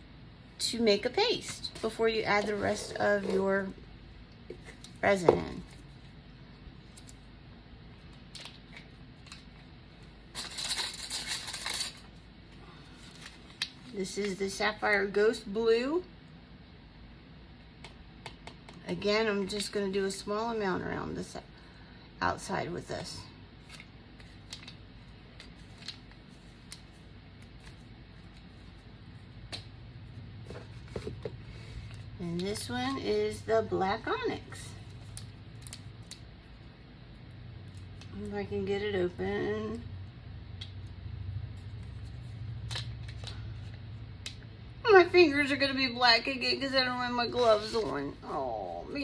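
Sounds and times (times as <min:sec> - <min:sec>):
low steady hum: 0:00.0 - 0:49.0
scratchy rustle of craft supplies: 0:01.3 - 0:03.8, 0:47.2 - 0:49.0.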